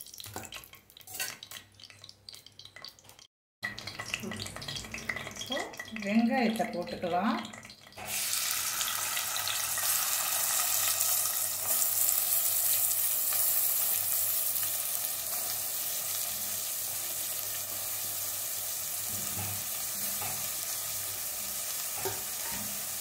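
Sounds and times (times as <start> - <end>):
onions sizzling in hot oil: 7.1 - 23.0.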